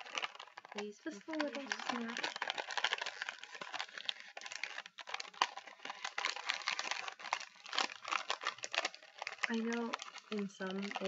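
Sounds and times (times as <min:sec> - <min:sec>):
snack package crinkling: 0:00.0 - 0:11.0.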